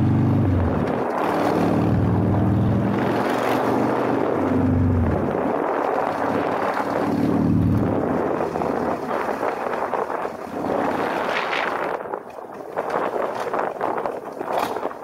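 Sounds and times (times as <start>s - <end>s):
motorcycle engine: 0.0s - 11.7s
wind rushing over microphone: 0.0s - 15.0s.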